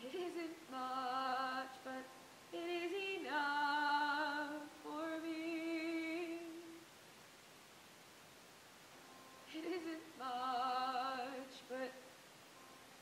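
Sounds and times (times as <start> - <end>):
woman singing unaccompanied: 0.0 - 6.9, 9.4 - 12.2.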